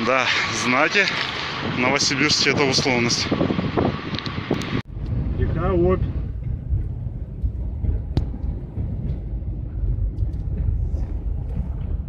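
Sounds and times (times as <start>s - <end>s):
van engine rumble from inside: 4.8s - 12.0s.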